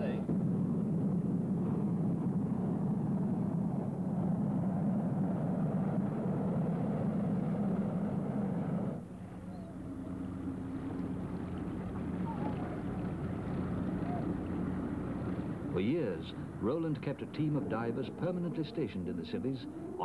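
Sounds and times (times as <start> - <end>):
aircraft cabin engine drone: 0.0 - 20.0.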